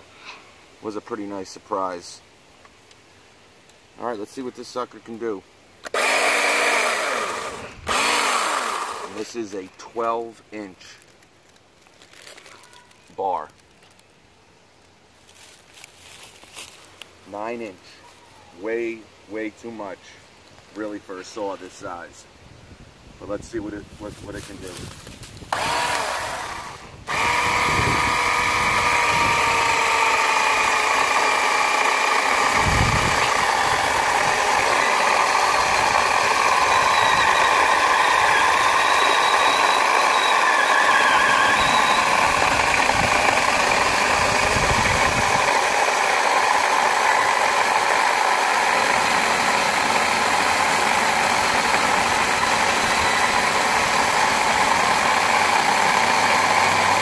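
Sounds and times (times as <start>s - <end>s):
electric chainsaw cutting log: 5.8s - 9.4s, 25.4s - 57.0s.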